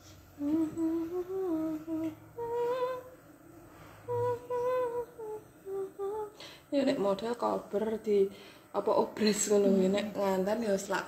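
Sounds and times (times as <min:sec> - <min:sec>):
person humming a tune: 0:00.4 - 0:03.2, 0:04.0 - 0:06.4.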